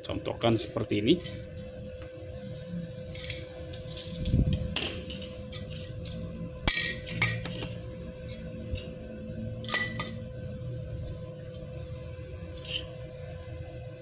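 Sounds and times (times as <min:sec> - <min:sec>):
steady hum: 0:00.0 - 0:14.0
metal tubes clinking and scraping: 0:02.4 - 0:09.0, 0:09.6 - 0:10.2, 0:12.4 - 0:13.1.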